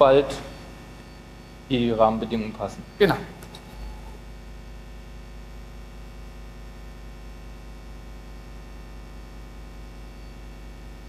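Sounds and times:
sound system hiss: 0.0 - 4.3
electrical mains hum: 0.0 - 11.0.

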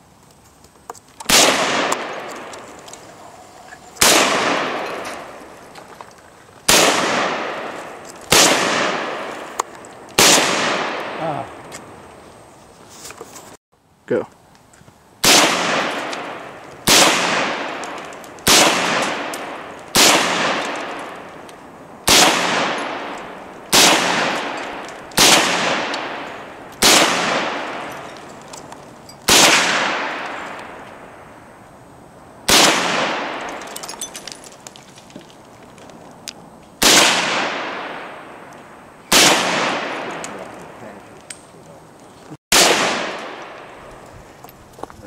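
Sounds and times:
gunshots with long echo: 1.3 - 2.6, 4.0 - 5.5, 6.7 - 9.6, 10.2 - 11.6, 15.2 - 21.4, 22.0 - 28.0, 29.3 - 31.2, 32.4 - 33.6, 36.8 - 40.9, 42.5 - 43.9.

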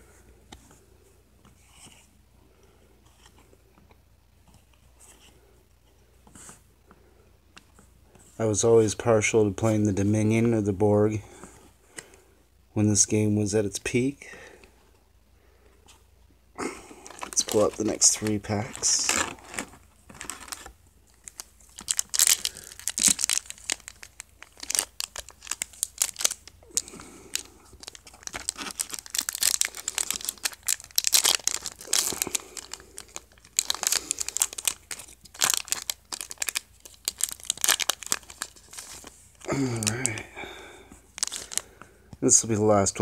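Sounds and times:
wrappers crinkling and tearing: 17.0 - 40.3, 41.1 - 41.8.

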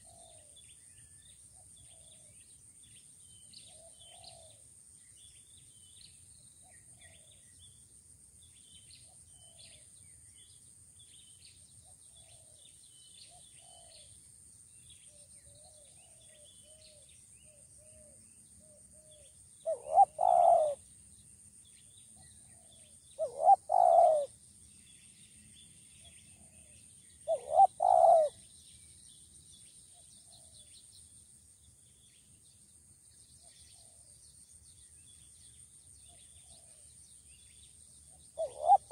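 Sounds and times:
dove cooing: 0.0 - 0.5, 19.6 - 20.8, 23.2 - 24.3, 27.3 - 28.4, 38.4 - 38.9
small birds chirping: 14.8 - 38.9.

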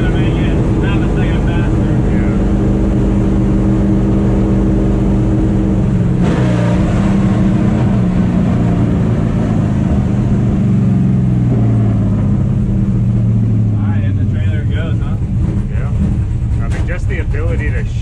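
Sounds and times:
race truck engine droning: 0.0 - 18.0.

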